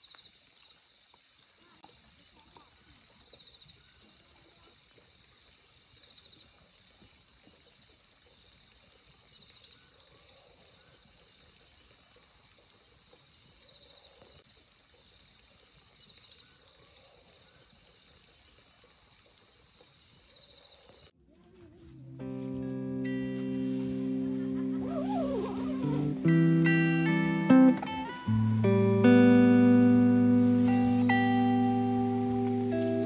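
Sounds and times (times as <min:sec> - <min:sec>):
night insects chorus: 0:00.0 - 0:21.1, 0:29.9 - 0:33.0.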